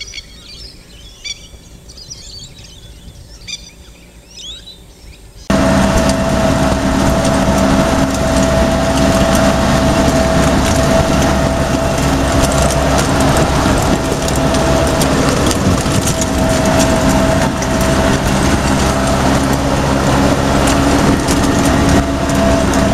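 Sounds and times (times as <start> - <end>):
road noise: 0.0 - 22.9
wind noise: 1.3 - 3.6, 5.5 - 22.9
high whine: 5.5 - 22.9
jeep engine running: 5.5 - 22.9.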